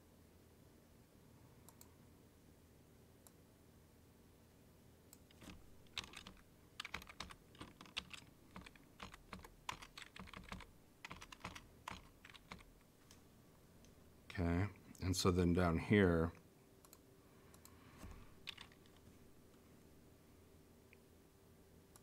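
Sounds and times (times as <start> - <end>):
computer keyboard key clicks: 5.2 - 12.7, 18.4 - 18.9.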